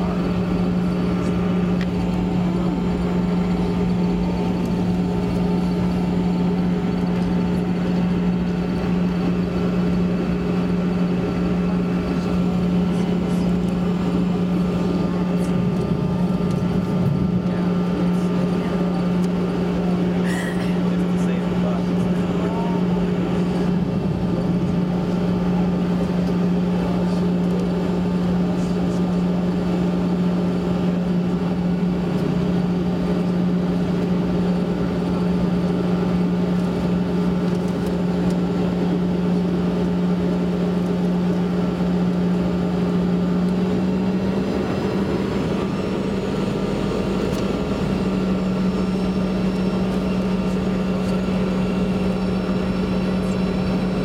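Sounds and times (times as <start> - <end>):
deep rumble: 0.0 - 39.5
jet engines humming in cabin: 0.0 - 54.0.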